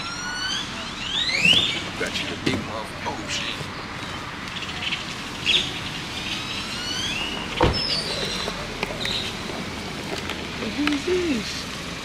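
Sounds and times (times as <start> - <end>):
high chirping bird calls: 0.0 - 2.4, 3.2 - 9.4
outdoor background noise: 0.0 - 12.0.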